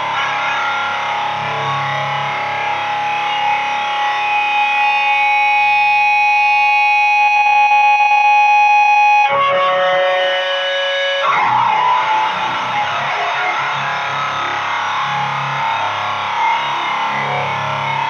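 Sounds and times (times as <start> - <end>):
distorted electric guitar: 0.0 - 18.0.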